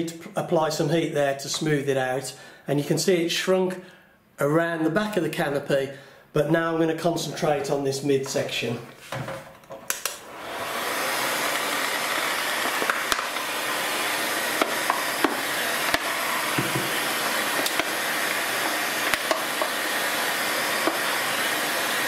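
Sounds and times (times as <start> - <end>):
heat gun blowing air: 10.0 - 22.0.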